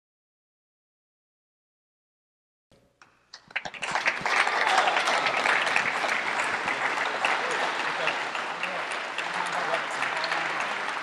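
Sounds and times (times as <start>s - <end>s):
audience applause: 3.4s - 11.0s.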